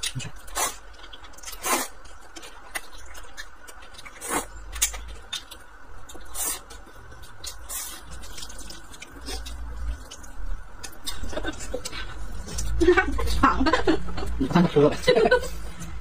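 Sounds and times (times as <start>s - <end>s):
wet noodle slurps: 1.4s - 2.0s, 4.1s - 4.6s, 7.4s - 10.1s.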